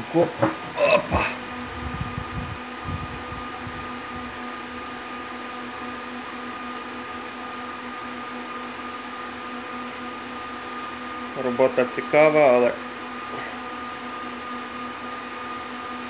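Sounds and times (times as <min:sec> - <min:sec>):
fan hum: 0:00.0 - 0:16.0
whining tones: 0:00.4 - 0:06.9.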